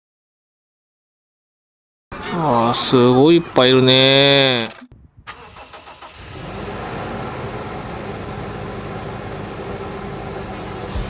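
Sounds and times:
low motor hum: 4.9s - 5.4s.

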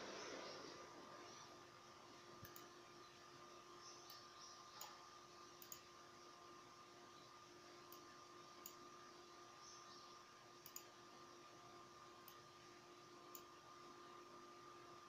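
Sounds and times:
faint steady hum: 0.0s - 15.0s
small sharp clicks: 2.4s - 2.7s, 5.6s - 5.9s, 7.9s - 8.8s, 10.6s - 11.0s, 12.2s - 12.4s, 13.3s - 13.5s.

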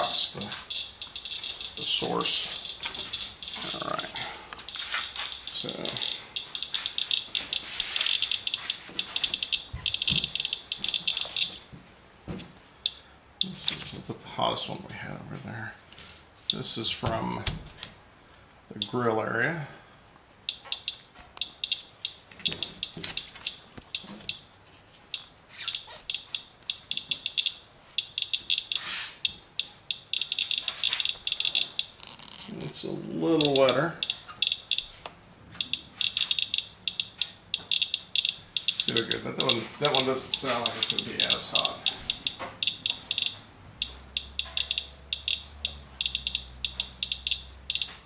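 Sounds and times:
geiger counter beeps: 0.0s - 11.6s, 12.8s - 13.6s, 18.7s - 19.0s, 20.5s - 24.5s, 25.1s - 32.0s, 33.2s - 48.0s.

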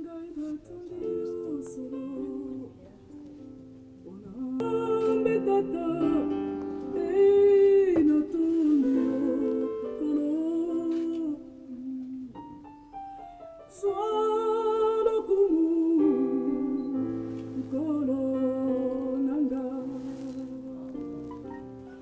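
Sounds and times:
person singing gospel song: 0.0s - 3.0s, 4.1s - 12.6s, 13.8s - 21.5s
electronic keyboard chords: 20.6s - 22.0s.

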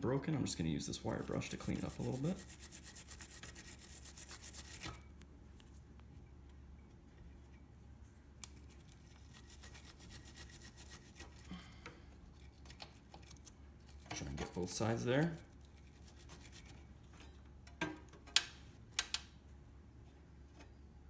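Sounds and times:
wire brush scrubbing metal: 0.6s - 5.0s, 8.5s - 11.6s, 12.3s - 16.9s.

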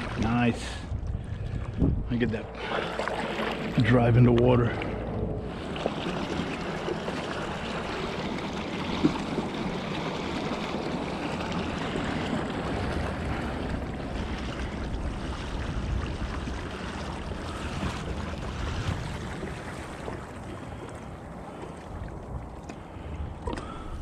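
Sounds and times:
water lapping against kayak hull: 0.0s - 24.0s.

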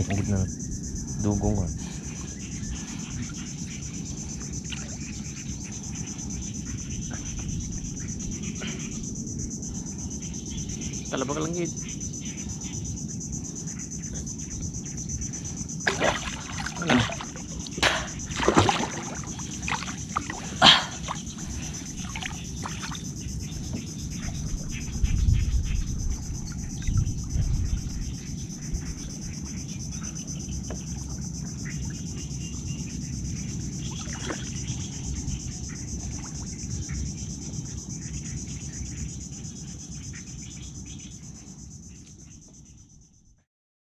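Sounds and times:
high-pitched insect drone: 0.0s - 43.4s
low rumble: 21.2s - 29.4s.

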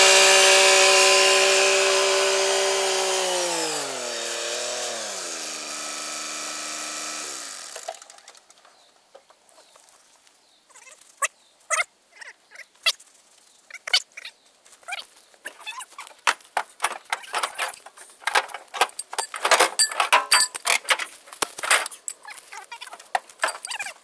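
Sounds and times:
footsteps crunching corn stalks: 14.3s - 19.5s, 20.1s - 24.0s.

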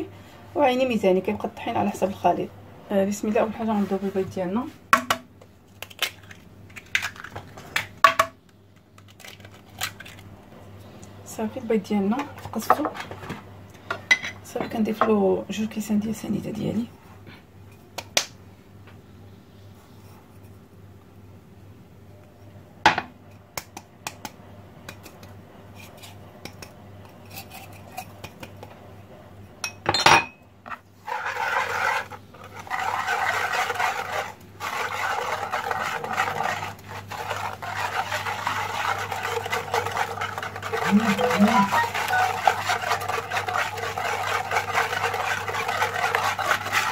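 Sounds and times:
whisk beating eggs in bowl: 31.0s - 46.9s
whisk clinking against bowl: 32.6s - 46.9s.

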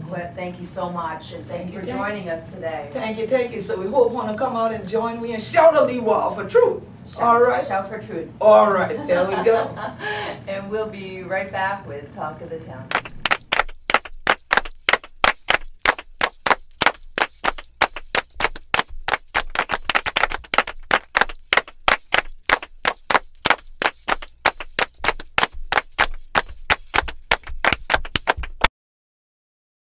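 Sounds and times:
fast percussion strikes: 12.9s - 28.7s.

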